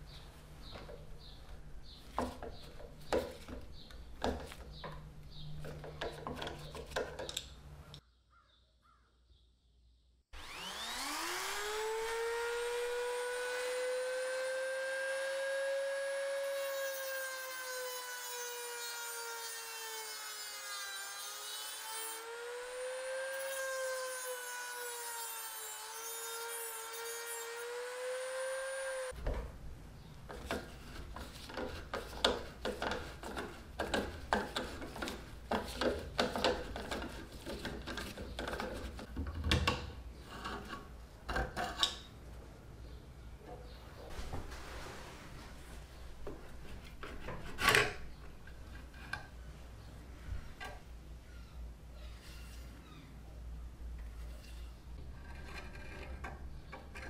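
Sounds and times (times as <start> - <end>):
rotary tool cutting disc whine: 10.4 - 14.8.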